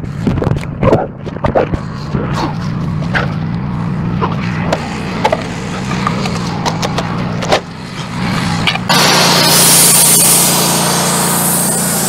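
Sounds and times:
sawmill engine idling: 3.7 - 12.0.

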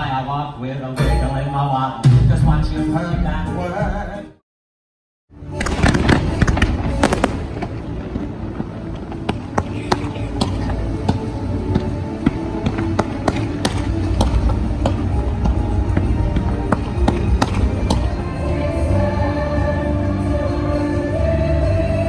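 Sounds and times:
show music: 0.8 - 4.4, 5.4 - 22.0
fireworks bangs: 5.4 - 18.2.

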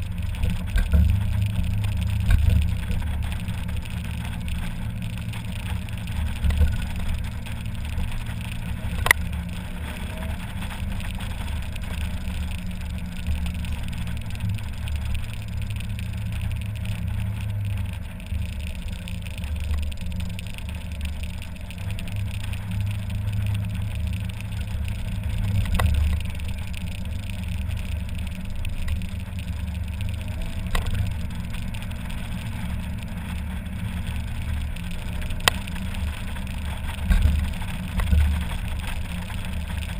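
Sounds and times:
car engine droning: 0.0 - 39.9
road and wind noise: 0.0 - 39.9.

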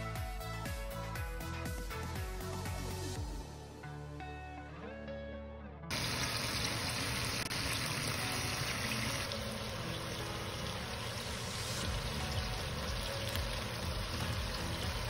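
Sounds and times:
chicken sizzling in hot oil: 5.9 - 15.0.

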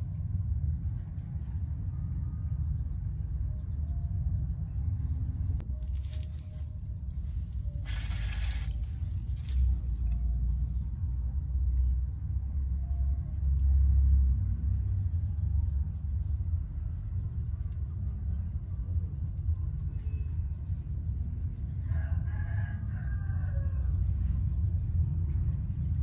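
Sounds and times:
low rumble: 0.0 - 26.0
rooster crowing: 21.8 - 23.9.

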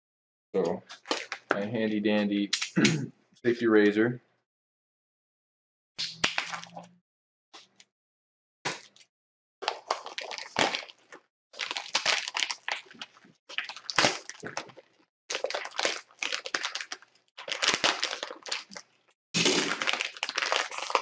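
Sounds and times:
plastic bag crinkling: 9.6 - 21.0.

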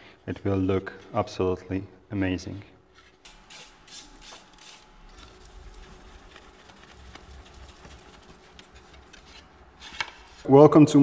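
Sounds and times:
cloth rubbing and wiping: 2.9 - 10.5
aerosol can spraying: 3.2 - 5.5.

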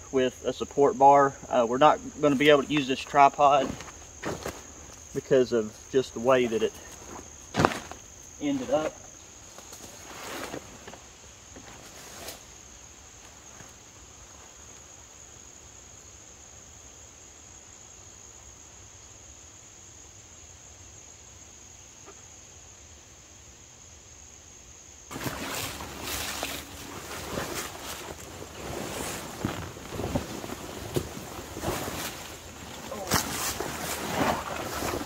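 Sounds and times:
loud rustling and scraping: 9.7 - 11.0, 25.1 - 35.0.

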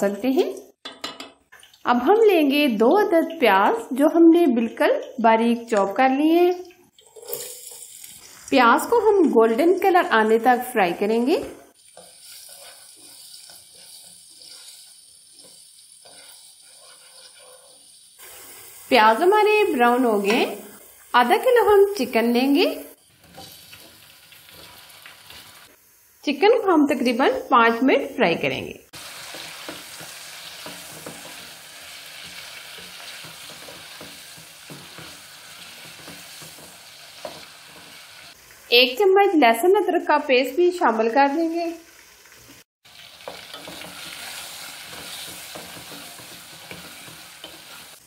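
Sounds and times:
onions sizzling in a pot: 1.5 - 48.0
spatula scraping a pot: 11.8 - 18.2, 43.2 - 48.0
spatula knocking and scraping pot: 29.3 - 31.5, 32.2 - 38.0, 43.2 - 48.0.

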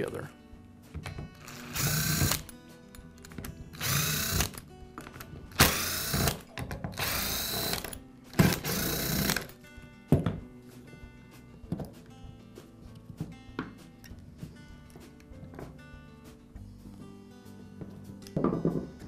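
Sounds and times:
power screwdriver motor whining: 1.4 - 2.5, 3.8 - 4.6, 5.6 - 6.4, 7.0 - 9.5.

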